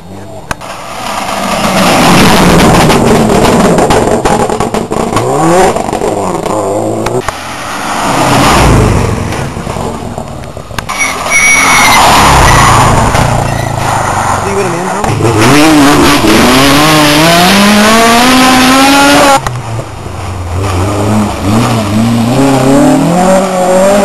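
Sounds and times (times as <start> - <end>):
rally cars passing at full throttle: 0.1 - 24.0
engine crackling pops: 0.5 - 7.4.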